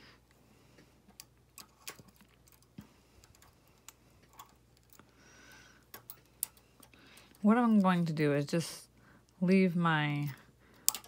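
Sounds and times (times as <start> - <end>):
metal tool clicking on knitting needles: 10.2 - 11.0.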